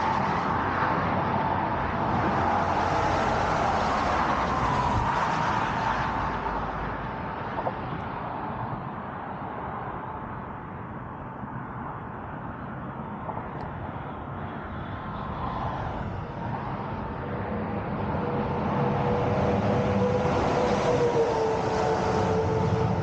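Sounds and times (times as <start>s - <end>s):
highway traffic passing: 0.0s - 23.0s
steady whine: 13.3s - 23.0s.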